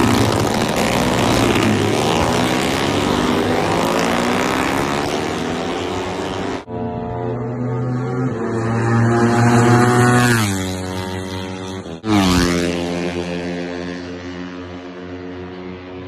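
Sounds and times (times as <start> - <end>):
racing motorcycles passing by: 0.0 - 16.0.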